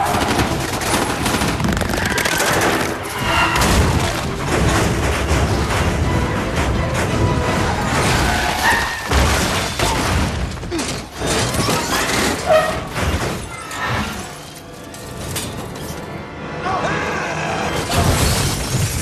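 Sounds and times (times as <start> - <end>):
heavy crashes: 0.0 - 13.5
debris shattering: 0.0 - 16.1, 17.8 - 19.0
steel vault scraping along road: 4.0 - 9.3
metallic screeches: 7.4 - 9.2, 11.2 - 16.1.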